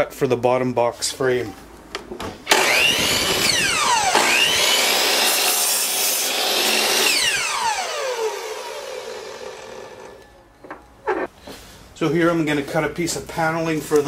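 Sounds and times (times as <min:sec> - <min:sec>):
saw blade cutting wood: 0:02.5 - 0:10.2
miter saw motor whining: 0:02.5 - 0:10.4.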